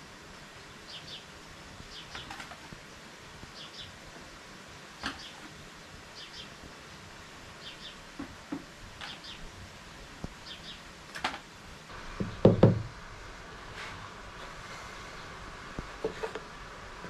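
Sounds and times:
faint background hiss: 0.0 - 17.0
bird chirping: 0.8 - 1.3, 1.9 - 2.5, 3.5 - 4.0, 5.0 - 6.6, 7.6 - 8.3, 9.0 - 9.5, 10.4 - 10.9.

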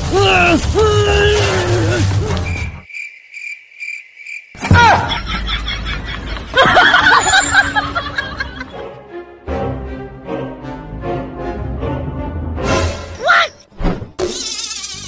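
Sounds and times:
cricket chirp sound effect: 2.4 - 4.6.

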